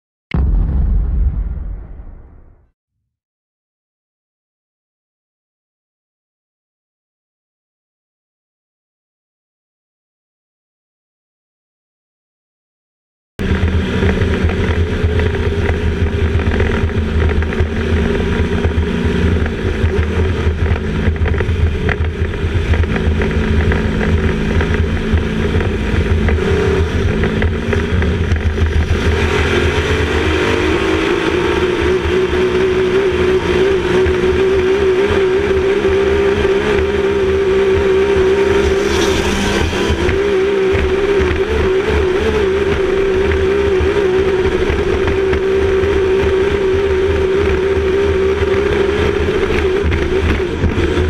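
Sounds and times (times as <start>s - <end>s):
boat engine running hard: 13.4s - 51.0s.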